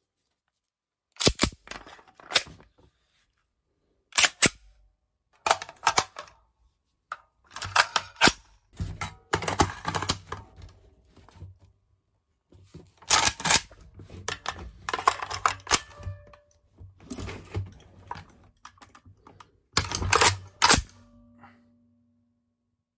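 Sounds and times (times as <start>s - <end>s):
magazine clicking into rifle: 4.2s - 4.7s, 19.8s - 21.0s
rifle bolt slamming forward: 19.8s - 21.0s.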